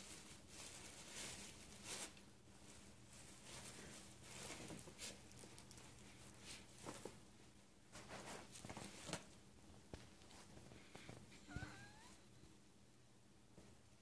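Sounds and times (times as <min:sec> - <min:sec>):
tissue paper and gift bag rustling: 0:00.0 - 0:07.2.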